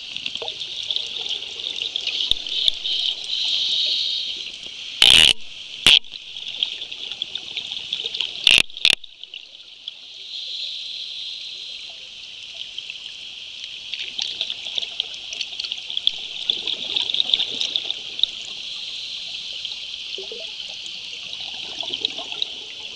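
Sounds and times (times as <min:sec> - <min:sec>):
underwater fizzing crackle: 0:00.0 - 0:22.9
sharp clicks: 0:02.3 - 0:03.3, 0:05.0 - 0:06.7, 0:08.4 - 0:09.1.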